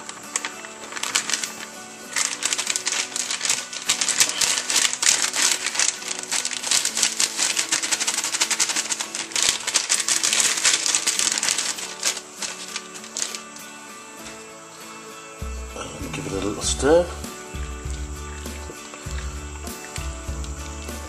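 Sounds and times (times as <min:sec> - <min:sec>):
background music: 0:00.0 - 0:21.0.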